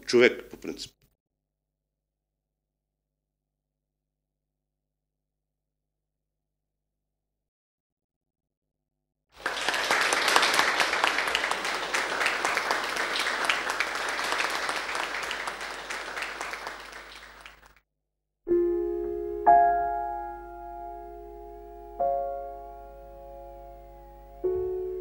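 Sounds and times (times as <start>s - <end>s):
audience clapping: 9.4s - 17.8s
piano notes ringing: 18.5s - 25.0s.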